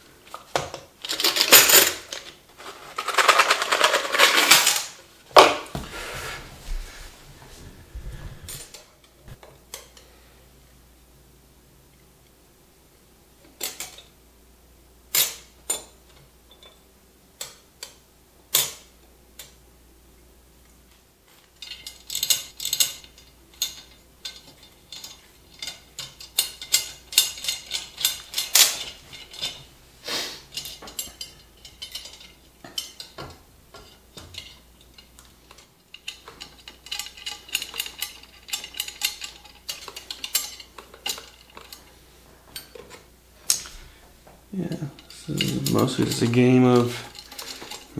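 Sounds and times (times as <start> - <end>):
metal spokes clinking and rattling: 1.0 - 5.0, 21.6 - 29.7, 30.5 - 42.0, 44.6 - 47.9.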